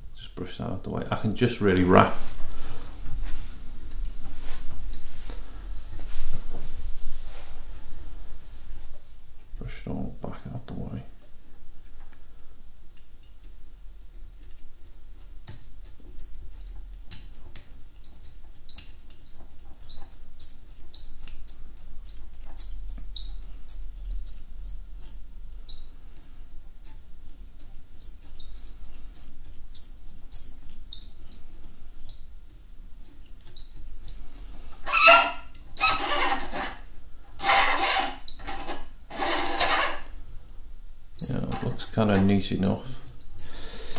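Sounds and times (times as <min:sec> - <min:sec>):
thread squeaking: 0:04.8 - 0:05.2, 0:15.4 - 0:17.3, 0:18.0 - 0:26.0, 0:26.8 - 0:32.4, 0:33.0 - 0:40.2, 0:41.2 - 0:43.9
loud rasping rubs: 0:34.8 - 0:40.2.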